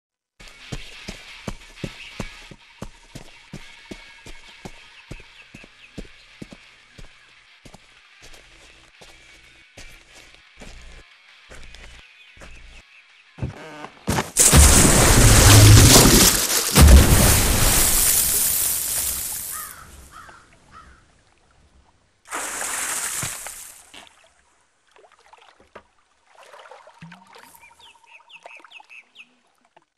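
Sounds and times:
deep boom: 14.4s - 18.3s
large splash: 14.4s - 19.8s, 22.3s - 23.9s
water churning and rushing: 14.4s - 19.8s, 22.3s - 23.9s.

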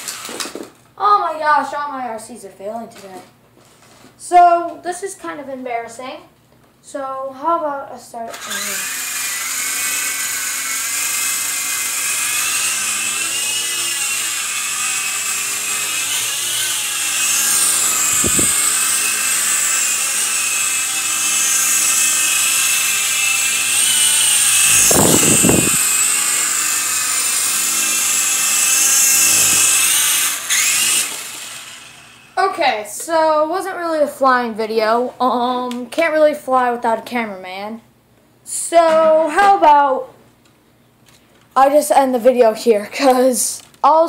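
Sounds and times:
toy helicopter rotors whirring: 0.0s - 0.7s, 8.3s - 32.4s.

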